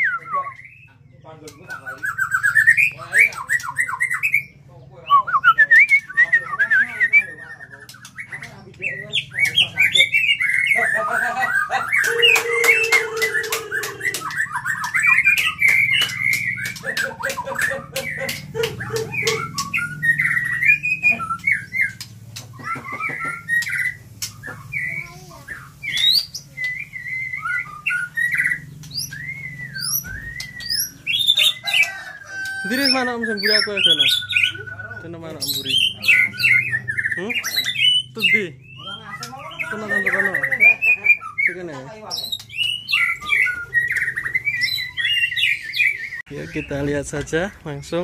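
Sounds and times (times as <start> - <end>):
bird singing whistles and chatter: 0.0 - 47.0
sharp clicks: 12.8 - 19.9.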